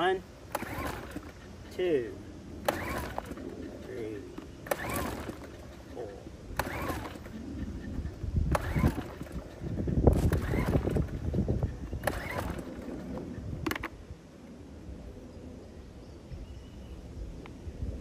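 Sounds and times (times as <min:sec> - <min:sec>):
engine turning over: 0:00.4 - 0:01.5, 0:02.6 - 0:14.0
generator pull-start cord yanked: 0:00.5 - 0:01.4, 0:02.6 - 0:05.9, 0:06.6 - 0:07.4, 0:08.5 - 0:11.4, 0:12.0 - 0:12.9, 0:13.6 - 0:14.0.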